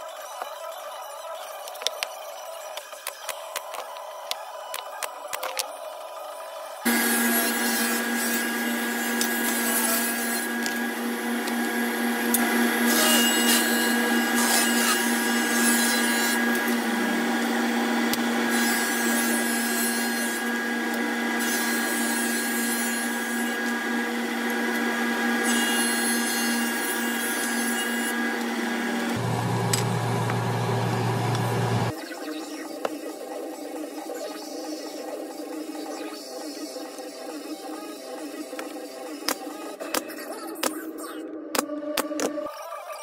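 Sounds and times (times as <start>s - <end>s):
table saw cutting wood: 6.8s - 32.0s.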